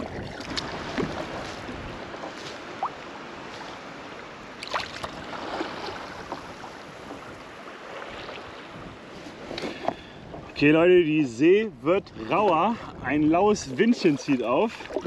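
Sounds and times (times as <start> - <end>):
wind buffeting microphone: 0.0 - 2.9, 8.1 - 15.0
water splashing around kayak: 0.0 - 10.8, 11.6 - 15.0.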